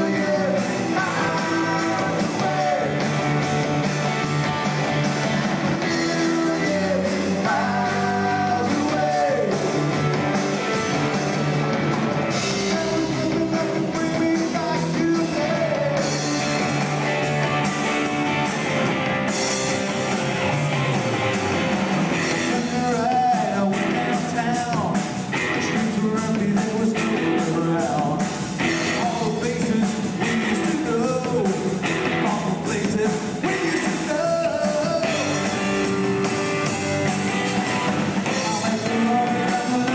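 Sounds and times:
person singing: 0.0 - 3.3, 5.8 - 9.9, 12.3 - 16.5, 22.2 - 35.6, 38.2 - 39.9
bass guitar: 0.0 - 39.9
drums: 0.0 - 39.9
electric guitars: 0.0 - 39.9.

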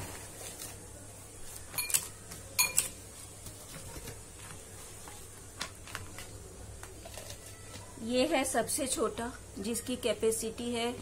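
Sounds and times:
glass bowls clinking: 1.8 - 3.0.

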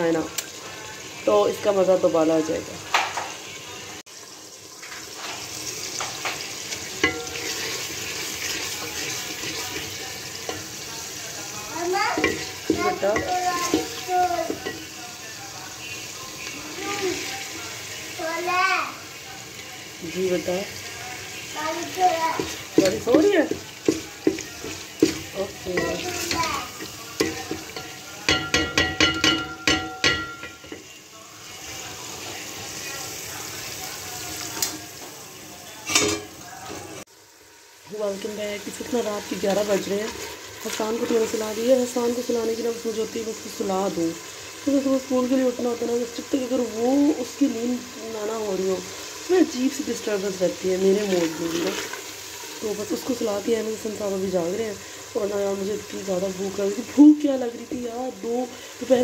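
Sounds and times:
curry sizzling: 0.0 - 59.0
wooden spoon scraping a pot: 5.0 - 10.8
spoon knocking against pot: 27.2 - 30.8.

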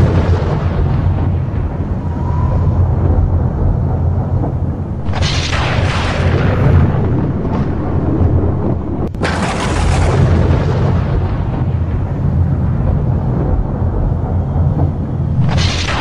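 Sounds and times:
low thunder rumble: 0.0 - 16.0
sharp thunderclap: 0.0 - 16.0.

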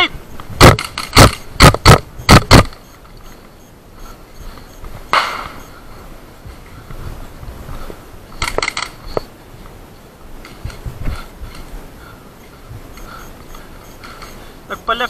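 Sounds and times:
airsoft rifle shots: 0.6 - 2.8, 5.1 - 5.6
soft rustling burst: 2.8 - 14.7.

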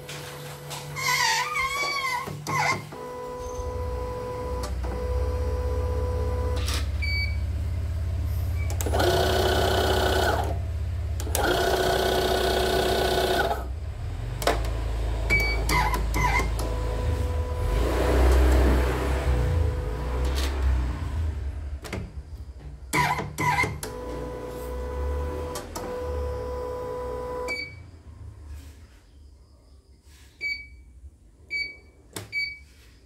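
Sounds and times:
embroidery machine humming: 2.5 - 20.6.

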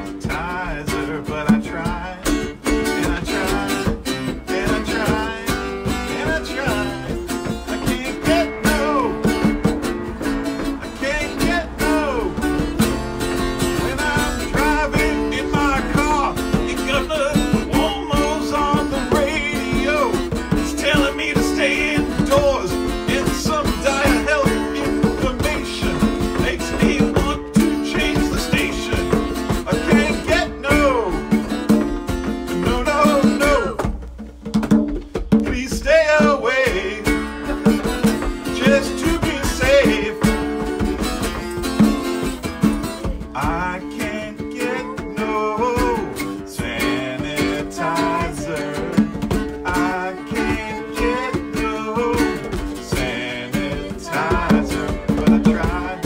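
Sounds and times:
acoustic guitar strumming: 0.0 - 56.0
djembe: 0.0 - 56.0.

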